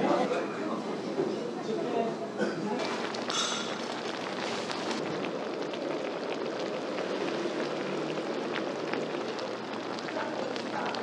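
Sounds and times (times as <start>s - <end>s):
soup boiling and bubbling: 2.6s - 11.0s.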